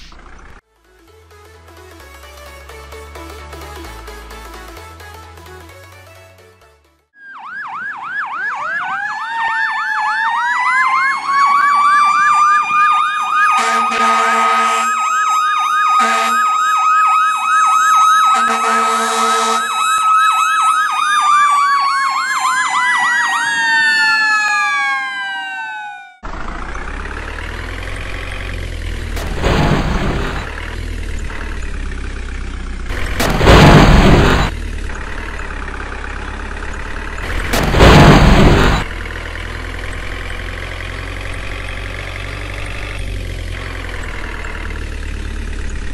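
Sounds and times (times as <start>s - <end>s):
truck engine running: 0.0s - 7.1s, 26.2s - 45.9s
fire engine siren wailing: 7.1s - 45.9s
short loud horn blasts: 13.6s - 15.0s, 16.0s - 16.5s, 18.3s - 19.7s.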